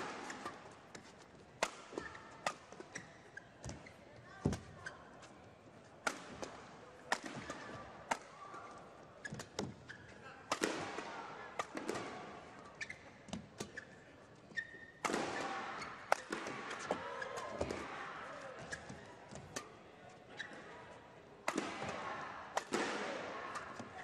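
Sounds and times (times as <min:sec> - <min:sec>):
rackets striking shuttlecock: 0:00.0 - 0:03.0, 0:06.0 - 0:08.4, 0:10.5 - 0:12.3, 0:15.0 - 0:17.8, 0:21.4 - 0:23.9
crowd noise: 0:00.0 - 0:24.0.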